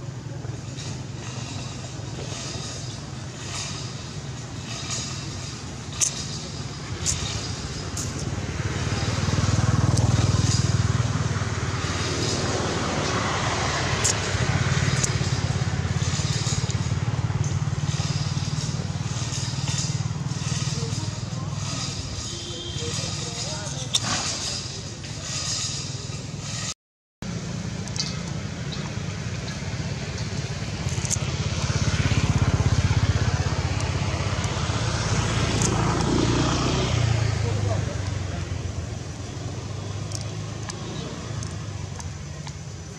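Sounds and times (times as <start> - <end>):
vehicle engine rumbling: 0.0 - 42.9.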